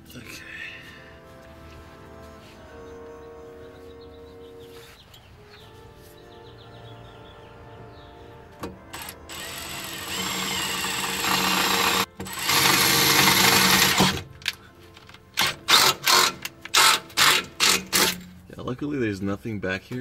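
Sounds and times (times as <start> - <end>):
power drill boring metal: 8.9 - 14.2, 15.4 - 18.2.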